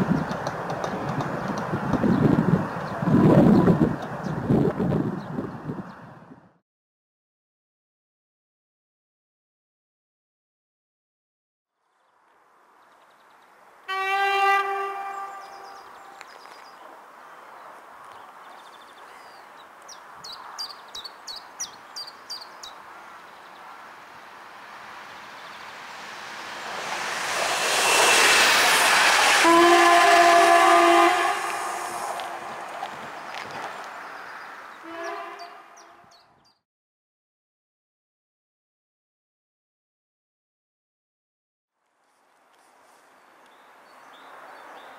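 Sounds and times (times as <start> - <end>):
train horn blasts: 13.9 - 16.2, 26.4 - 32.8, 34.8 - 36.1
rushing noise: 24.2 - 33.9.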